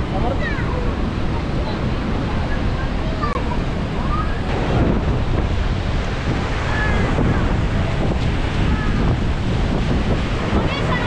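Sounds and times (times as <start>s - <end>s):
steady rushing noise: 0.0s - 11.0s
wind buffeting microphone: 0.0s - 11.0s.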